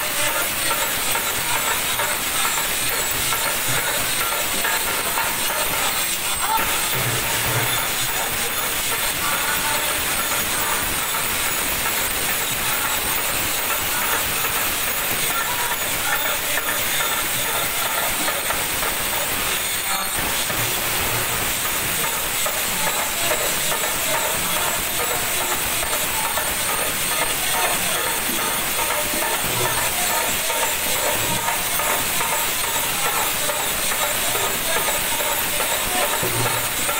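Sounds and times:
faint voices: 0.0 - 36.9
hand cymbals clashing: 0.0 - 36.9.

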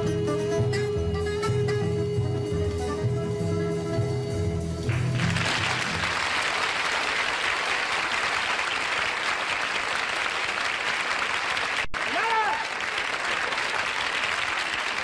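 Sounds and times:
song accompaniment held notes: 0.0 - 6.2
audience applauding: 4.8 - 15.0.

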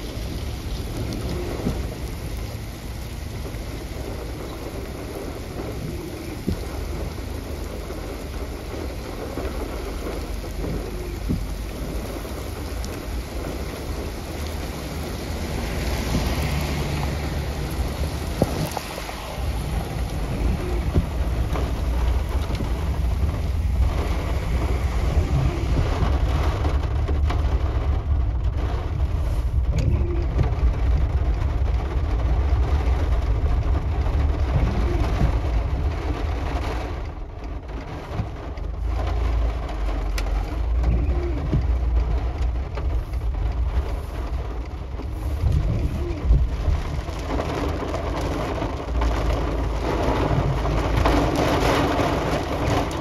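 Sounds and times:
deep thunder rumble: 0.0 - 37.7
rain hissing: 0.0 - 53.0.

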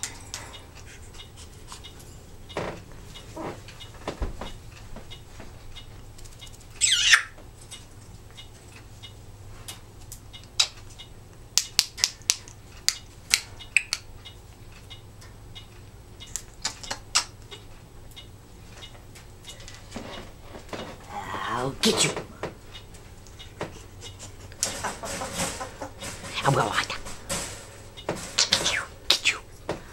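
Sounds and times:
parrot squawking: 6.8 - 7.4, 28.4 - 29.5.

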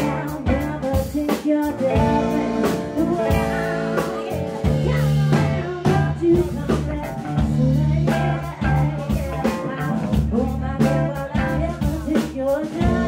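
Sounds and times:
drum and cymbal hits: 0.0 - 13.0
electric guitar notes: 1.8 - 11.7.

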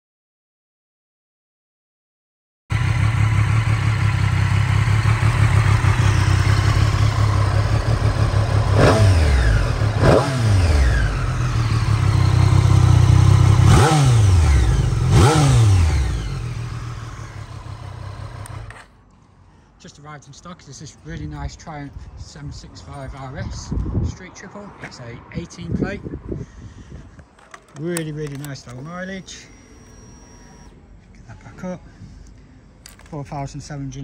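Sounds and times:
motorcycle engine idling and revving: 2.7 - 19.0.

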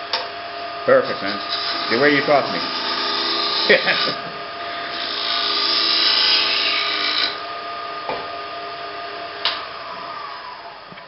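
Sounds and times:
lathe motor whine: 0.0 - 11.0
gouge scraping wood on lathe: 1.0 - 7.4.

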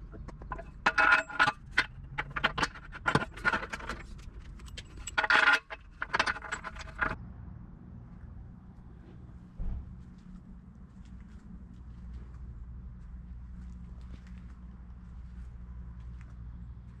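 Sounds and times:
metal parts clinking: 0.0 - 7.2
low hum: 0.0 - 17.0.

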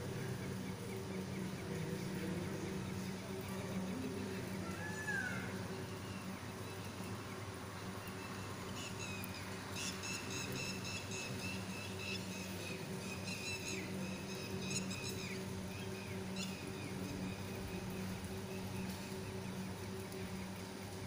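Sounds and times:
bird calling high-pitched: 4.6 - 5.6.

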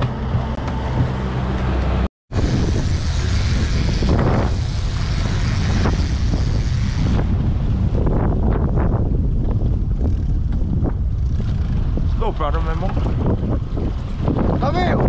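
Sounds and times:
outboard motor running: 0.0 - 8.0
wind buffeting microphone: 0.0 - 15.0.

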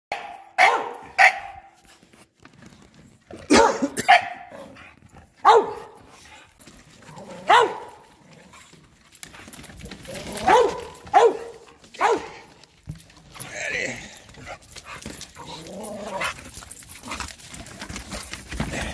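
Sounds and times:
dogs barking: 0.1 - 1.8, 3.5 - 4.8, 5.4 - 6.0, 7.4 - 8.0, 10.0 - 12.6.

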